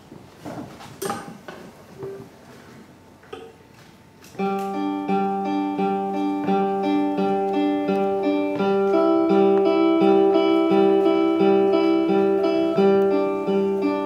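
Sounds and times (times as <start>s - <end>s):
stray instrument notes: 4.4s - 14.0s
fiddle and guitar folk tune: 4.5s - 14.0s.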